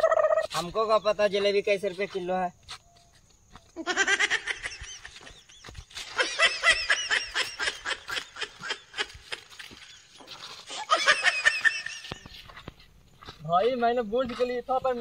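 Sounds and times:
high-pitched laughter bursts: 0:03.8 - 0:05.3, 0:06.0 - 0:09.9, 0:10.5 - 0:12.2.

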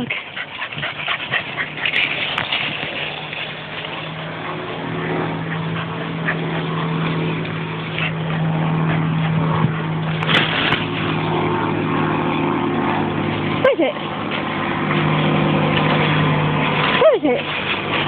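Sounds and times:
engine drone: 0:00.0 - 0:18.0
noisy rustle: 0:00.8 - 0:05.1, 0:10.0 - 0:12.4.

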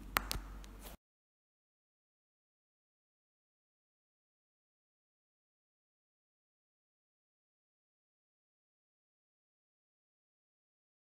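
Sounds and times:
low steady hum: 0:00.0 - 0:01.0.

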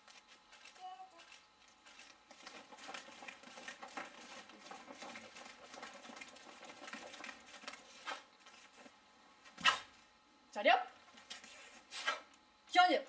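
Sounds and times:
feet scuffing on mats: 0:00.0 - 0:09.9.

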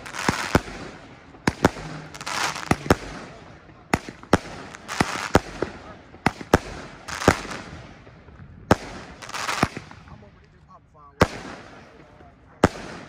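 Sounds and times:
firework shells hissing: 0:00.0 - 0:07.6
firework bangs: 0:00.0 - 0:10.2, 0:11.2 - 0:13.0.

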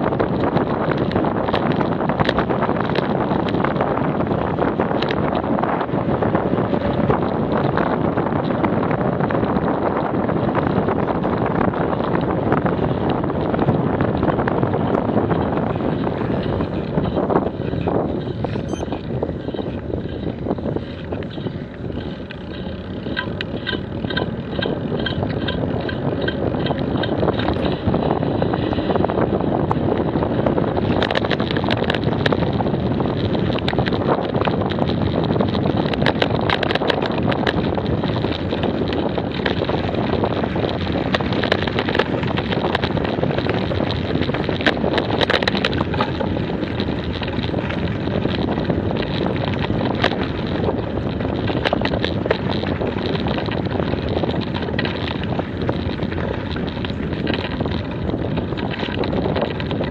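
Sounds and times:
bicycle rattling clicks: 0:00.0 - 0:59.9
tyre rumble on rough surface: 0:00.0 - 0:59.9
wind buffeting microphone: 0:00.0 - 0:59.9.

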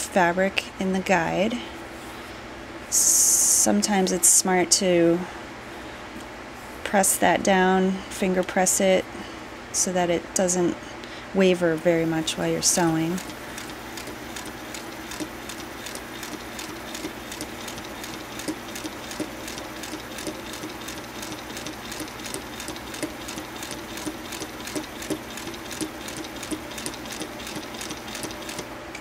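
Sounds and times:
sewing machine stitching: 0:12.7 - 0:28.7.

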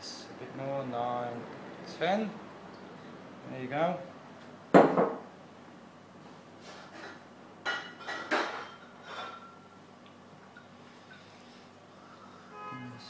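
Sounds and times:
glassware clinking: 0:07.7 - 0:09.7.

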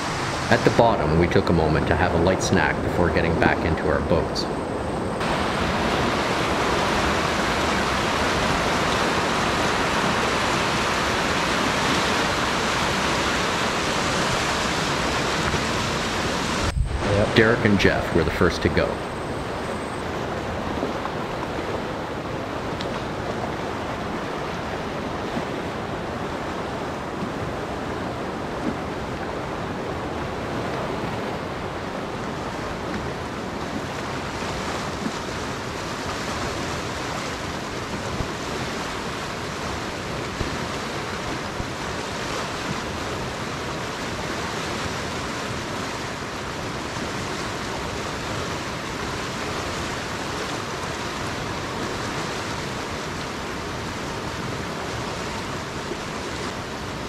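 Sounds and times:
rapids rushing over rock: 0:00.0 - 0:03.5, 0:05.2 - 0:19.7.

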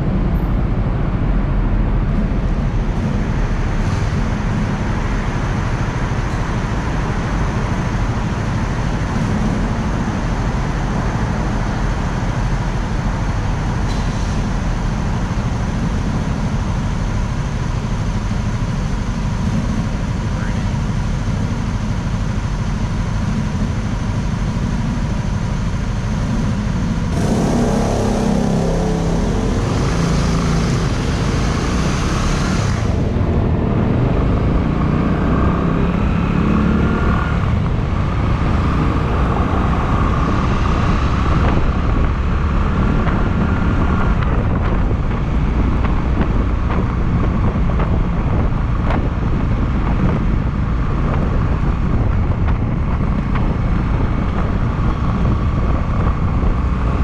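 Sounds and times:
motorcycle engine running: 0:14.6 - 0:57.0.

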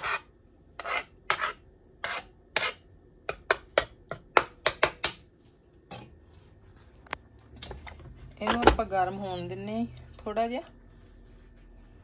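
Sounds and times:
metal spoon scraping: 0:00.0 - 0:02.9.

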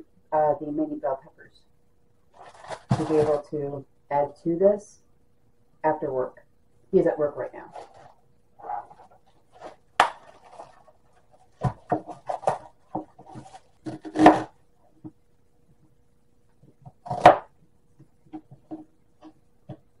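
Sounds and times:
plastic bag rustling: 0:02.3 - 0:03.5, 0:07.6 - 0:14.5.

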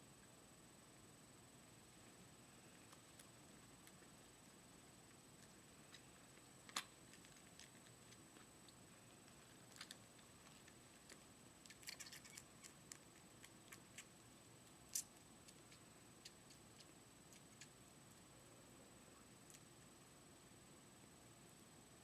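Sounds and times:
kitten suckling from bottle: 0:11.7 - 0:14.1.

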